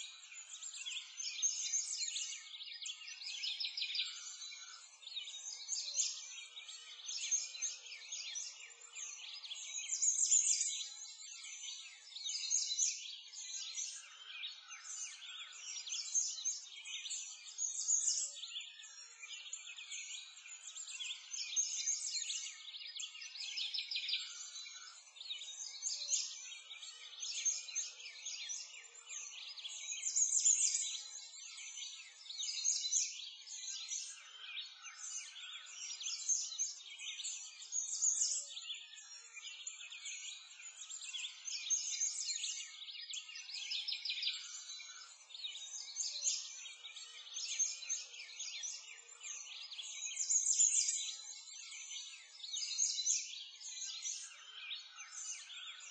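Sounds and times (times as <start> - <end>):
birds chirping and twittering: 0.0 - 55.9.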